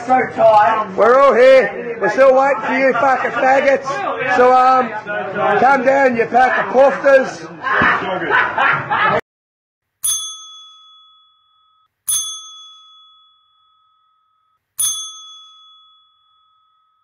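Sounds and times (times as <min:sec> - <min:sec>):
bell-like dings: 0:10.0 - 0:17.0.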